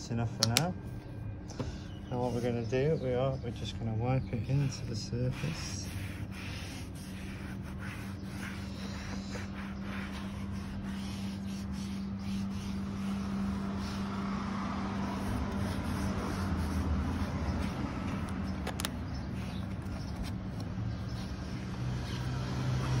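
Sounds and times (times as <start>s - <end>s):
low machine hum with rumble: 0.0s - 23.0s
foam pad rubbing on plastic: 2.1s - 23.0s.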